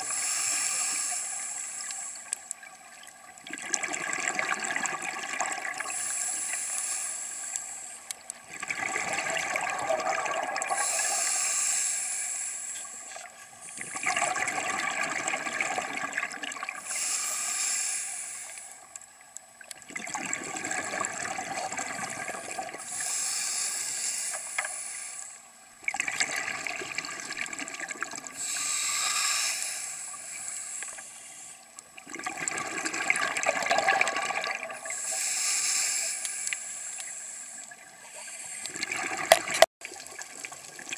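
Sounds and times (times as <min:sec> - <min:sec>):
regulator breathing hiss: 0:00.0 - 0:02.4, 0:05.8 - 0:08.1, 0:10.7 - 0:13.9, 0:16.8 - 0:18.9, 0:22.8 - 0:25.5, 0:28.4 - 0:31.6, 0:34.8 - 0:38.7
gurgling exhaled bubbles: 0:03.4 - 0:06.0, 0:08.5 - 0:11.1, 0:13.7 - 0:16.9, 0:19.8 - 0:22.8, 0:25.8 - 0:28.4, 0:32.0 - 0:35.0, 0:38.6 - 0:40.9.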